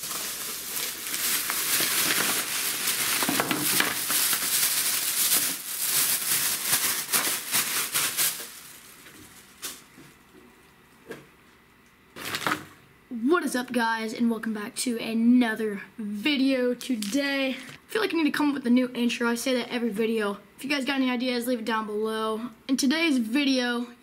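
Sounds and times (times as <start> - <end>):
items rattling: 0.0 - 10.2
plastic bag crinkling: 0.0 - 11.0, 12.1 - 12.8.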